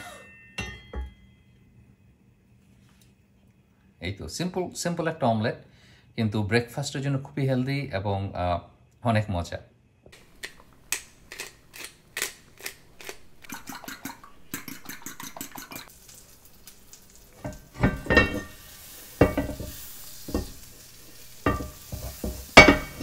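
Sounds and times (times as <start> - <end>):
frying pan sizzling: 10.2 - 23.0
cookware knocking: 17.4 - 18.6, 19.2 - 20.6, 21.4 - 23.0.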